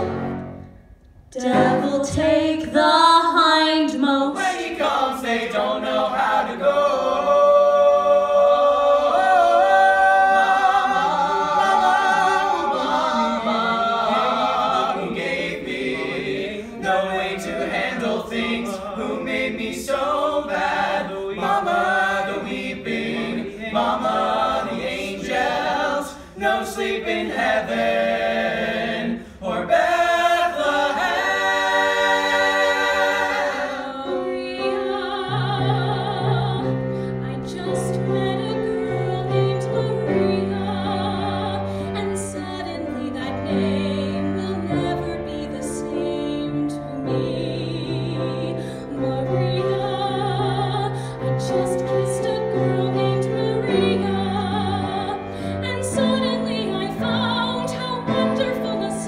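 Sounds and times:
young men singing in harmony: 0:04.4 - 0:34.9.

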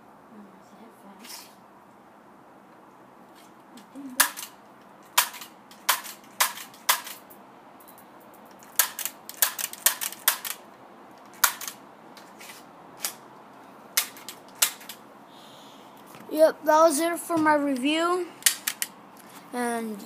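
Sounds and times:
bb gun firing sharp shots: 0:05.2 - 0:07.2, 0:08.8 - 0:10.6.

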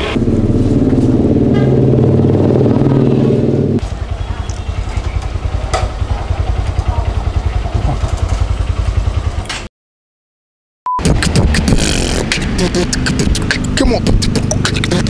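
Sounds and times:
vehicle engine idling: 0:00.0 - 0:09.5.

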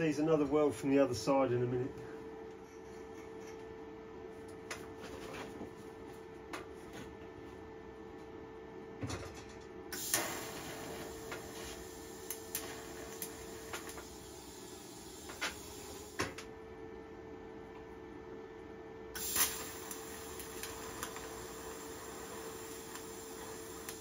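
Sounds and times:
welding set humming: 0:00.0 - 0:24.0
welding hiss: 0:09.9 - 0:16.4, 0:19.2 - 0:24.0.

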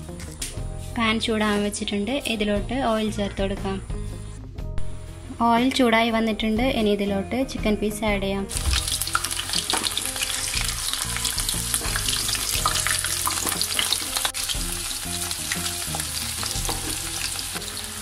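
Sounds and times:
chicken frying in hot oil: 0:08.5 - 0:18.0.

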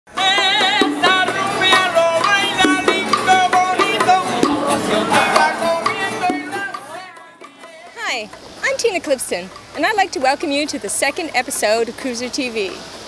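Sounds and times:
band singing: 0:00.1 - 0:08.8
bongos: 0:00.1 - 0:11.7
acoustic guitars: 0:00.1 - 0:12.9.

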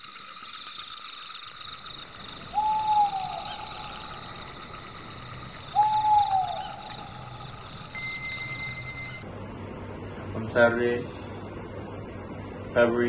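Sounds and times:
insects chirping: 0:00.0 - 0:09.2
owl hoot: 0:01.6 - 0:08.0.

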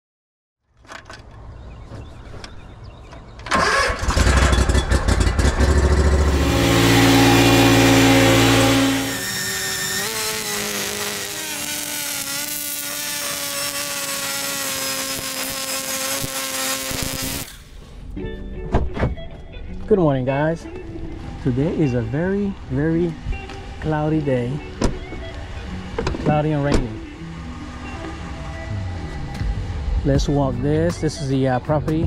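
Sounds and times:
two-stroke edger running: 0:03.5 - 0:17.8
lawn mower engine running: 0:03.5 - 0:17.9.

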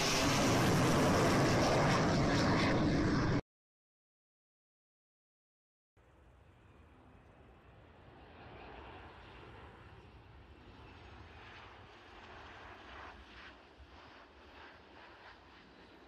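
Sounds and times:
jet airliner landing: 0:00.0 - 0:03.4, 0:06.6 - 0:16.0.

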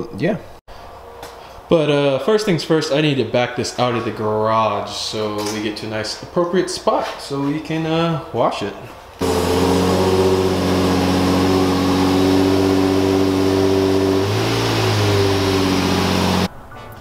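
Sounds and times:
car engine idling: 0:09.2 - 0:16.5.

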